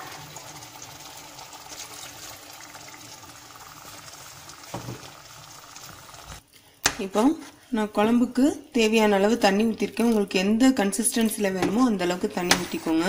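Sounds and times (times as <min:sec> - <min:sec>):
water pouring into a pot: 0:00.0 - 0:06.4.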